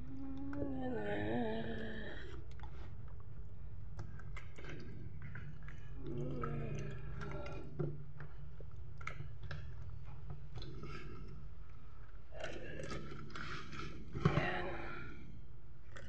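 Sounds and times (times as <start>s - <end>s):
person humming: 0.0s - 2.2s.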